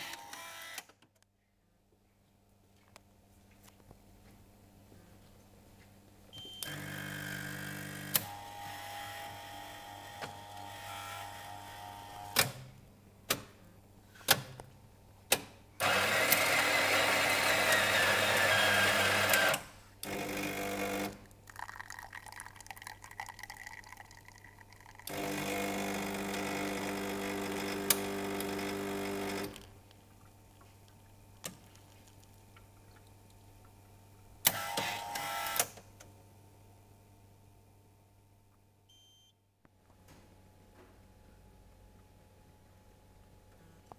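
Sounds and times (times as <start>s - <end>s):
coffee machine motors: 6.6s - 12.4s, 15.8s - 22.4s, 25.0s - 29.6s.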